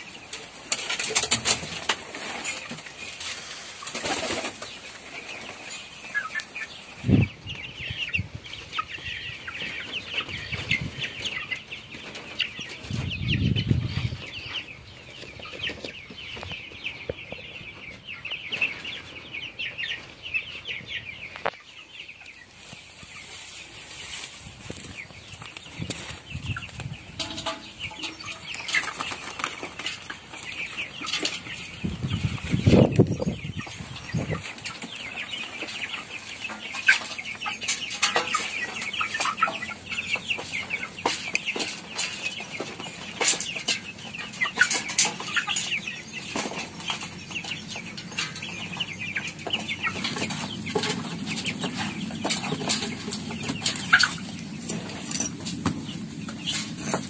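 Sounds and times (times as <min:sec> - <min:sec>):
chickens clucking and cheeping: 0:00.0 - 0:57.0.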